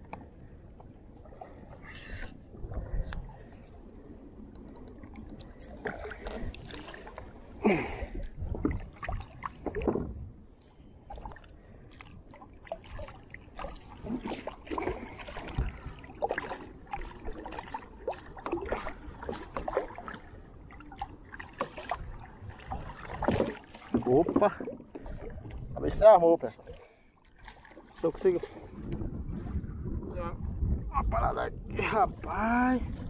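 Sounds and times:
knocks and splashes: 0:05.0 - 0:10.3, 0:11.1 - 0:29.6
water slapping against kayak hull: 0:08.2 - 0:10.4, 0:11.1 - 0:29.6.

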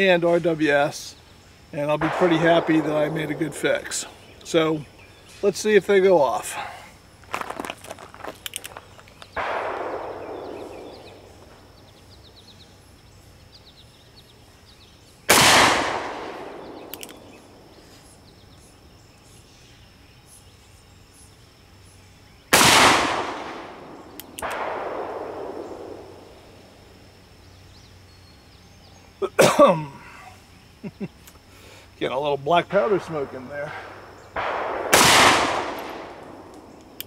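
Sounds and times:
loud revolver shots echoing: 0:01.9 - 0:04.2, 0:09.4 - 0:11.8, 0:15.3 - 0:17.7, 0:22.5 - 0:26.6, 0:33.0 - 0:36.9
faint bangs with echo: 0:01.9 - 0:04.4, 0:09.3 - 0:11.8, 0:15.3 - 0:17.6, 0:22.6 - 0:26.6, 0:32.8 - 0:36.8.

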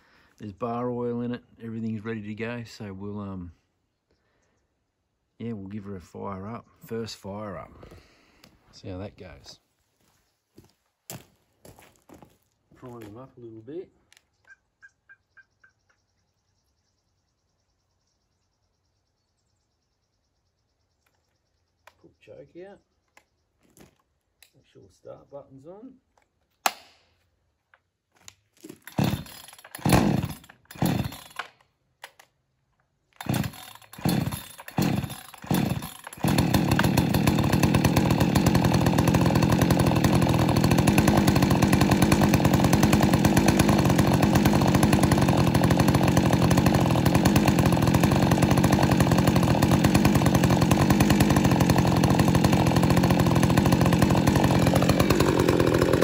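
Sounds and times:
starter cord pulls: 0:28.2 - 0:32.3, 0:33.2 - 0:56.0
chainsaw engine running: 0:28.6 - 0:32.2, 0:33.2 - 0:56.0.

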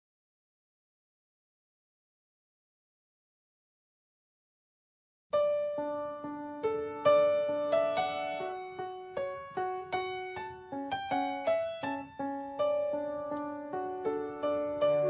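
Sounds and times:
slow piano melody: 0:05.4 - 0:15.0.

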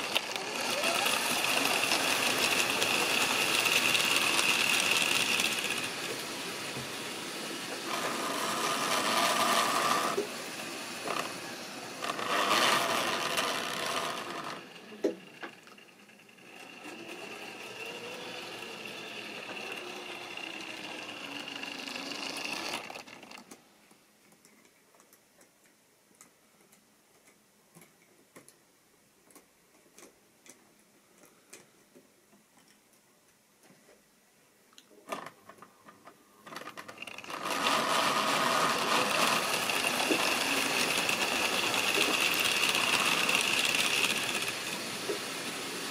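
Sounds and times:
model train motor whine: 0:00.0 - 0:23.4, 0:36.5 - 0:45.9
model train wheels clattering: 0:00.0 - 0:23.6, 0:35.1 - 0:45.9.

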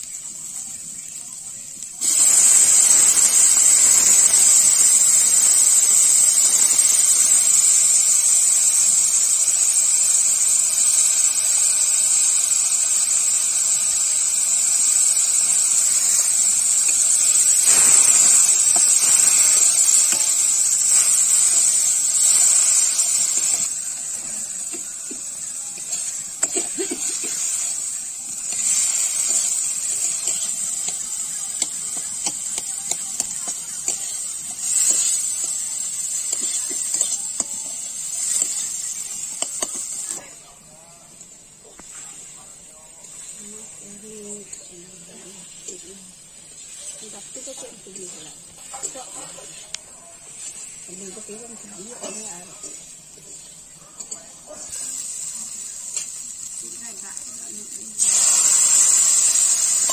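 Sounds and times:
food sizzling in hot oil: 0:00.0 - 0:59.9
steel spatula scraping wok: 0:14.6 - 0:40.2, 0:44.5 - 0:55.2, 0:58.0 - 0:59.9.

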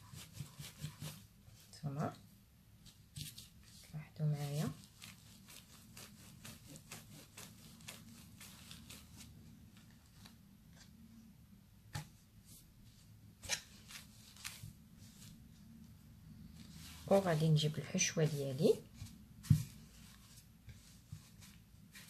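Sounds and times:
rolling pin rolling over dough: 0:00.0 - 0:01.6, 0:02.8 - 0:10.3, 0:16.3 - 0:22.0.

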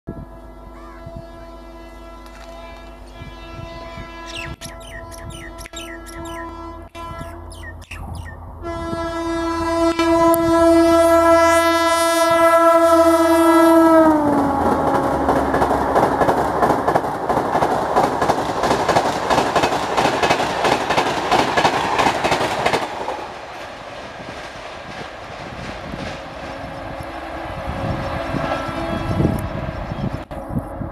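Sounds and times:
locomotive air horn: 0:00.1 - 0:07.5, 0:08.6 - 0:15.3, 0:26.5 - 0:29.4
train coaches rushing past: 0:02.3 - 0:30.9.

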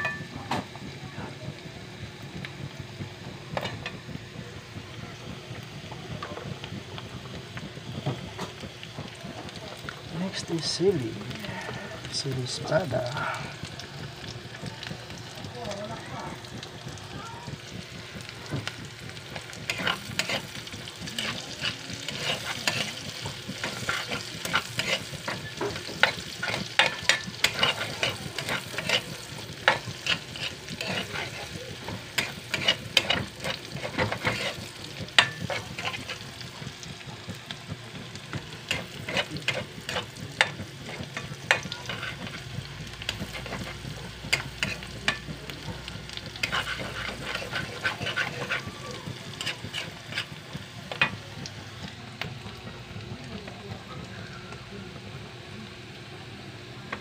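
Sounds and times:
food sizzling: 0:00.0 - 0:57.0
metal spoon scraping a wok: 0:19.7 - 0:20.6, 0:21.2 - 0:36.3, 0:38.7 - 0:42.5, 0:43.1 - 0:45.3, 0:46.4 - 0:48.7, 0:49.3 - 0:51.2.

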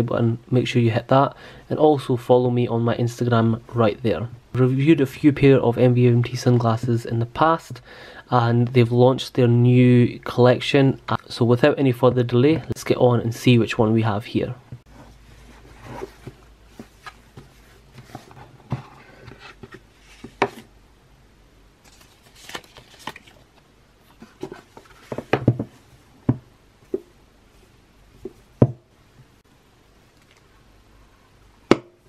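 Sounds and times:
cardboard packaging handled: 0:15.0 - 0:20.7, 0:21.8 - 0:23.5, 0:24.2 - 0:25.8.

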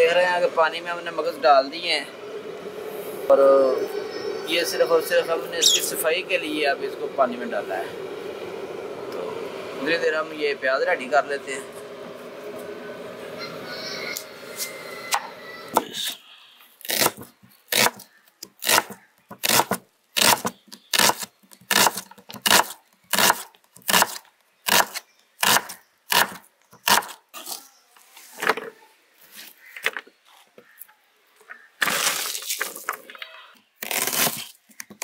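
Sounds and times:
knife slicing onion on board: 0:18.6 - 0:27.2
onion slices rustling in plastic tray: 0:31.8 - 0:33.2.

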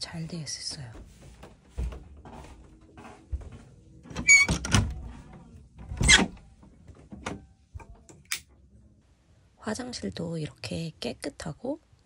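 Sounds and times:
door squeaky scrape: 0:04.2 - 0:04.8, 0:06.0 - 0:06.3.

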